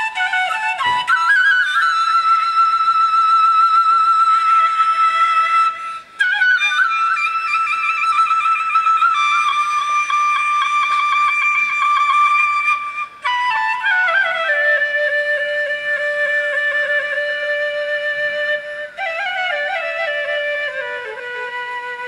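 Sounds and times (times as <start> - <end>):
flute melody: 0.0 - 22.0.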